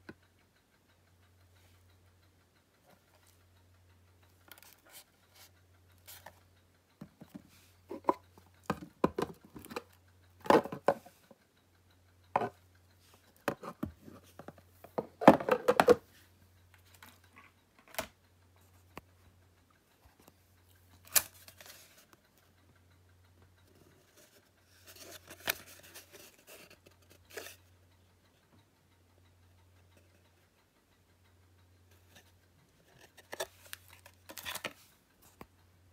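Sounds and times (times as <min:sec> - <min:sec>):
plastic cases clicking and tapping: 0:07.1 - 0:09.8, 0:10.4 - 0:11.1, 0:13.5 - 0:16.0.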